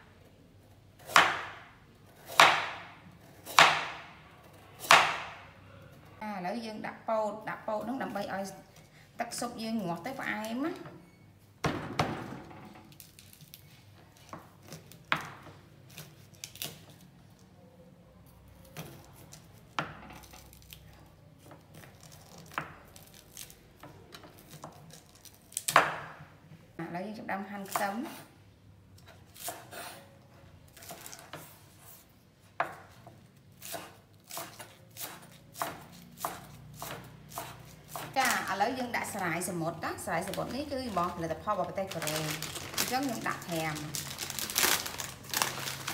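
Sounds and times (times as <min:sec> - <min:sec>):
knife chopping corn cob: 0:01.0 - 0:04.0, 0:04.8 - 0:05.4, 0:33.6 - 0:38.4.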